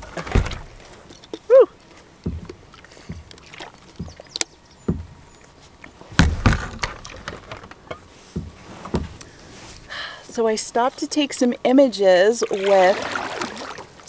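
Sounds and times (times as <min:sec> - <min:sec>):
bump and thud: 0:00.0 - 0:00.8, 0:02.2 - 0:03.3, 0:04.8 - 0:05.2, 0:06.1 - 0:07.7
plastic bottle handling knocks: 0:04.8 - 0:05.1, 0:06.2 - 0:07.7.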